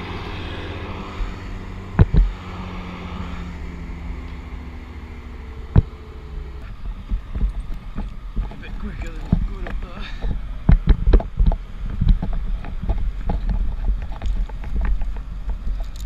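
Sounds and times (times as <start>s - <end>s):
engine humming: 0.0s - 16.0s
scattered bumps: 1.9s - 2.4s, 6.6s - 16.0s.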